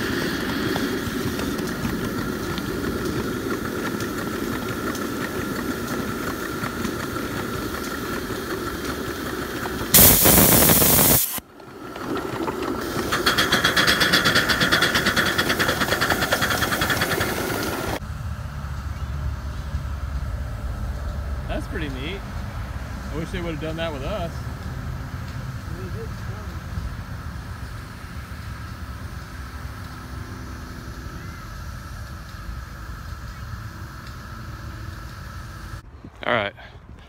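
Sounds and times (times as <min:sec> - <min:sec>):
fast rhythmic hiss: 0:00.0 - 0:11.4, 0:12.8 - 0:18.0
steam locomotive running: 0:00.0 - 0:36.6
burst of escaping steam: 0:09.9 - 0:11.4.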